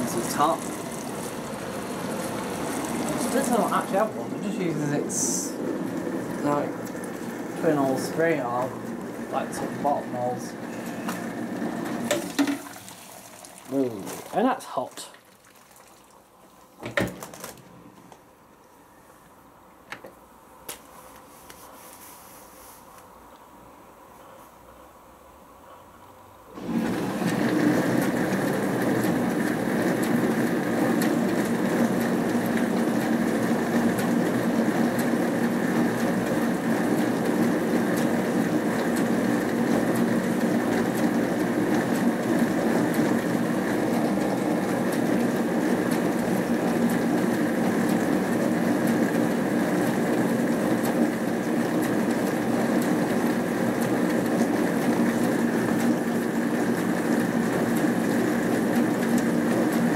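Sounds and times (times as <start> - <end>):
water spraying and splashing: 0.0 - 4.1, 12.0 - 16.4
dishwasher motor hum: 0.0 - 18.5, 26.4 - 59.9.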